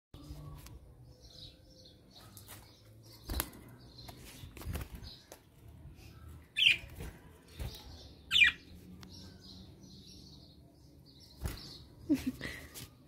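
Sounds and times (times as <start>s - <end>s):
birds fluttering wings in cage: 2.5s - 5.5s, 6.6s - 8.1s, 11.3s - 11.9s.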